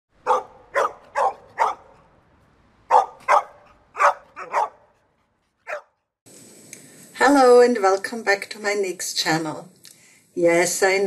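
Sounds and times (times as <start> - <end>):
dog barking: 0.2 - 2.1, 2.9 - 6.1.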